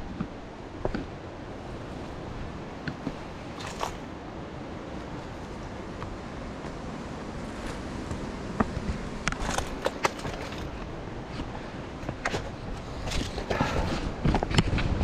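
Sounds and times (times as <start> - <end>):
wind rumble on microphone: 0.0 - 15.0
footsteps crunching on rocky trail: 4.8 - 15.0.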